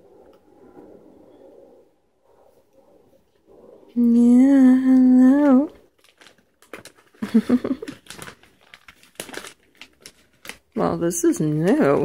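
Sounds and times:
plastic snack bag crinkling: 5.3 - 12.0.

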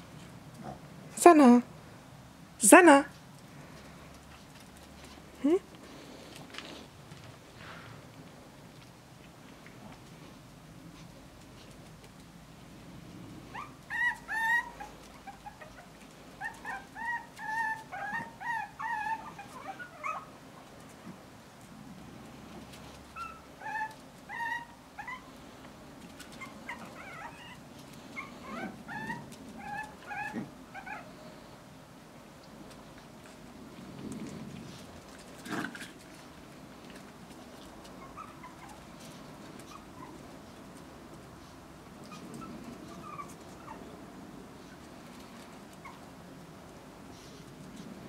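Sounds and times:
puppies squeaking and whimpering: 13.5 - 20.3, 23.2 - 25.3, 26.3 - 31.1, 38.0 - 38.9, 39.6 - 40.2, 42.0 - 43.9.

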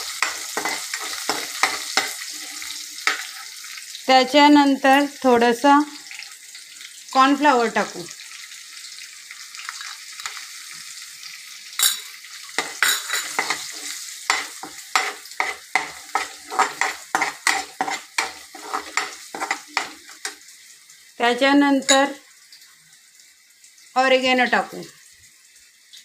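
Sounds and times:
metal spoon scraping pan: 0.0 - 3.5, 11.8 - 20.4
garlic sizzling in hot oil: 0.0 - 26.0
sharp metal clink: 11.8 - 12.1.

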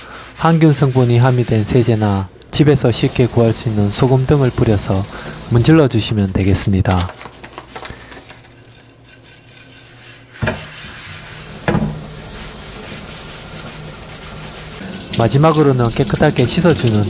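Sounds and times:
gritty scrubbing: 8.2 - 17.0
knocks on cutting board: 11.7 - 12.0.

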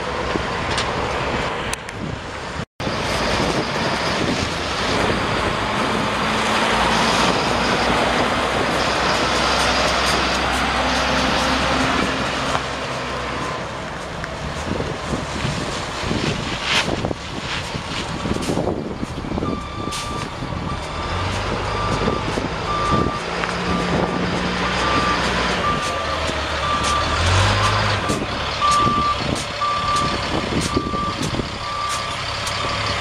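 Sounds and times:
diesel engine running: 2.3 - 33.0
truck backup alarm beeping: 19.0 - 33.0.

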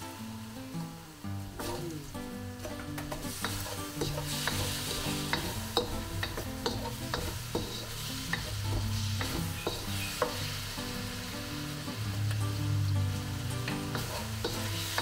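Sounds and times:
food sizzling in a wok: 0.0 - 15.0
wooden spoon scraping a pan: 2.6 - 10.6, 13.6 - 15.0.

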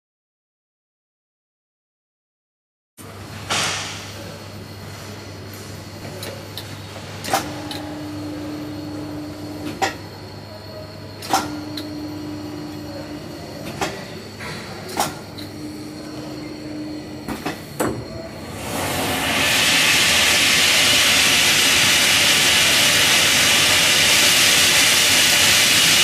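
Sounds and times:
machine hum: 4.2 - 26.0.

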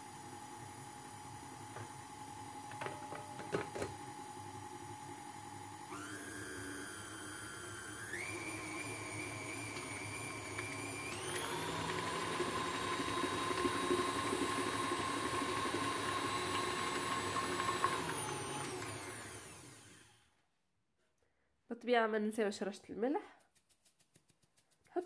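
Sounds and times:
stand mixer motor whirring: 0.4 - 20.2.

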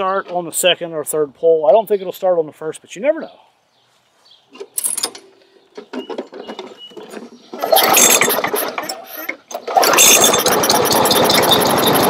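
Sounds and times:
small engine pull-started: 6.0 - 12.0.

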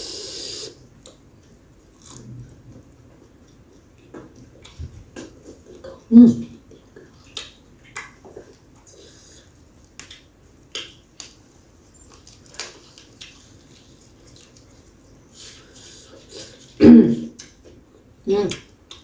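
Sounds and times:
chewing leaves: 1.5 - 5.9, 11.9 - 16.8
lip smacks: 7.0 - 9.0
leaves tearing: 12.2 - 13.0.

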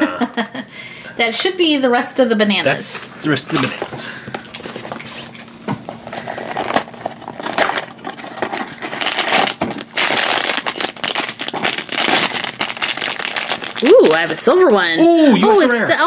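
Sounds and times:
foil bag crinkling: 3.5 - 14.9
cardboard box tearing: 6.2 - 13.9.

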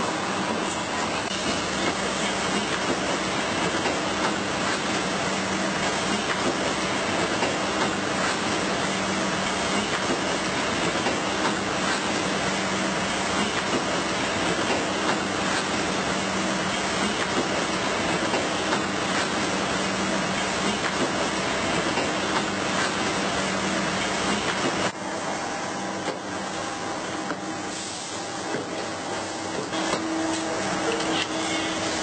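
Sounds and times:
machinery hiss: 27.6 - 28.5.

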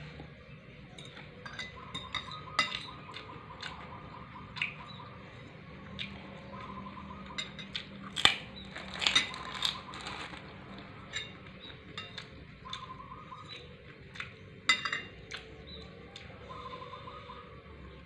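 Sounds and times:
cutlery clinking on a plate: 1.0 - 3.7, 7.3 - 7.9, 11.1 - 12.9, 14.7 - 15.4.

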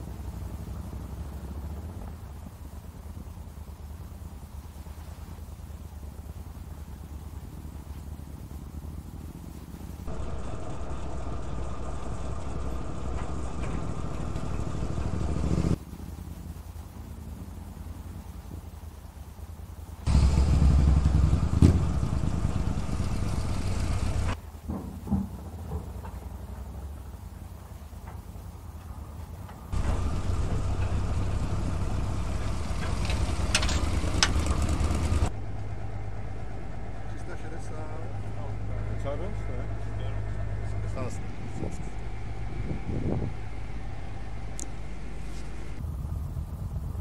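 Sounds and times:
motorcycle riding: 0.0 - 47.0
steady low hum: 0.0 - 47.0.

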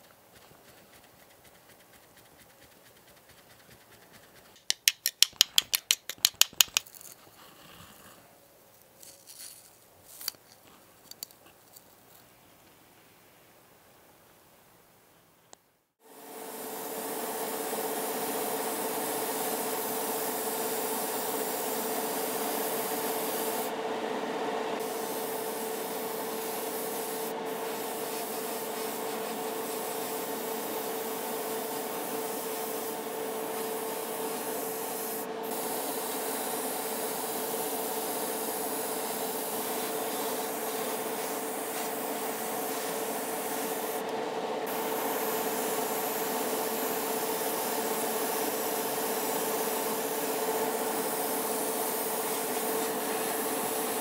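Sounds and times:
airbrush spraying hiss: 0.4 - 4.6, 16.5 - 23.7, 24.8 - 44.1, 44.7 - 54.0
extractor fan humming: 16.1 - 54.0.

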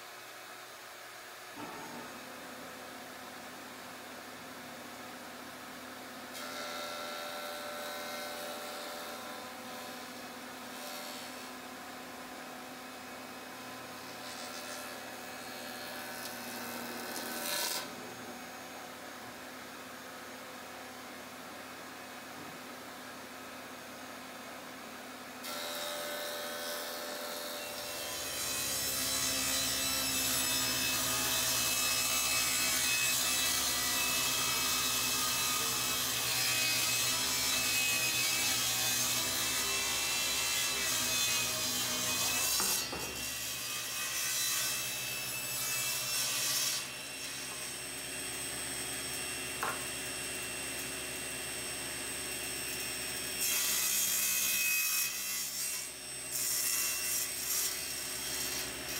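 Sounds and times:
table saw cutting wood: 1.6 - 2.7, 6.3 - 18.9, 25.4 - 58.9.

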